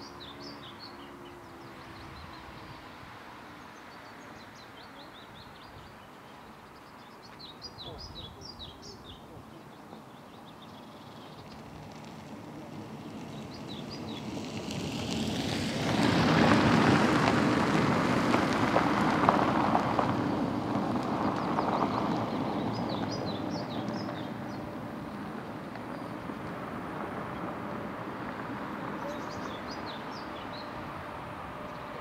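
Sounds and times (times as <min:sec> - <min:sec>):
vehicle passing close by: 0:11.4 - 0:32.0.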